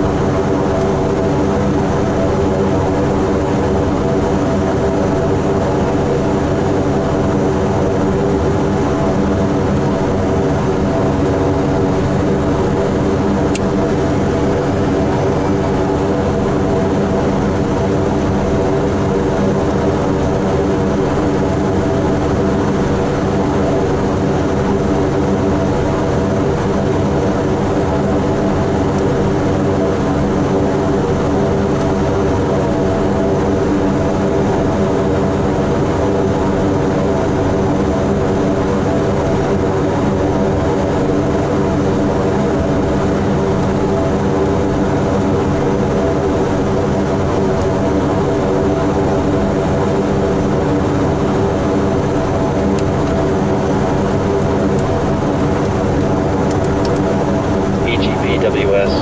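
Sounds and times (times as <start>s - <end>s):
turboprop engines droning: 0.0s - 59.0s.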